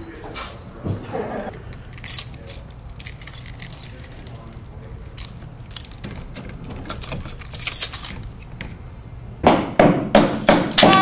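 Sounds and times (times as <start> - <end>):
keys jangling: 1.7 - 8.4.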